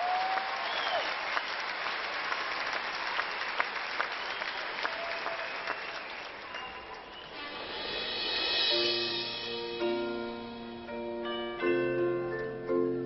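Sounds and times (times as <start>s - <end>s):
large crowd applauding: 0.0s - 7.7s.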